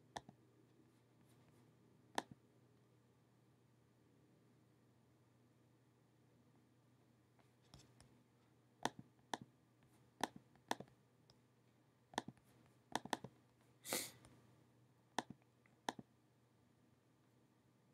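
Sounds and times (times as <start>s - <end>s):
faint low hum: 0.0s - 17.9s
sharp clicks and taps: 10.2s - 11.4s, 12.1s - 13.3s, 15.2s - 16.1s.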